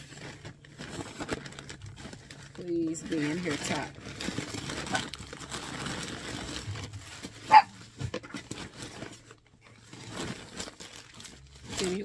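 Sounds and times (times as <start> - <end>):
plastic mailer bag crinkling: 0.0 - 12.0
dog barking: 7.5 - 7.8.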